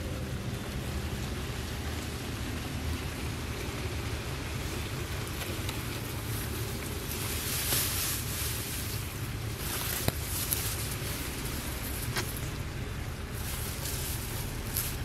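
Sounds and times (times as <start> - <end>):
rustling: 4.7 - 15.0.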